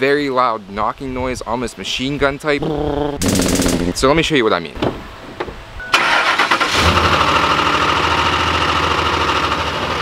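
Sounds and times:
engine starting with knocking: 3.2 - 4.0, 6.0 - 7.4.

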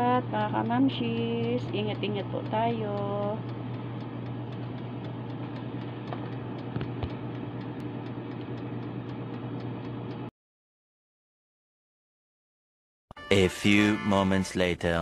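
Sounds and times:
air fryer fan humming: 0.0 - 10.3
timer dial ticking: 0.0 - 10.3.

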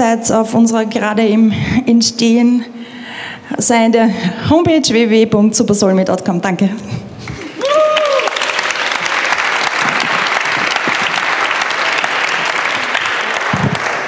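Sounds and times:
audience applauding: 7.3 - 14.0.

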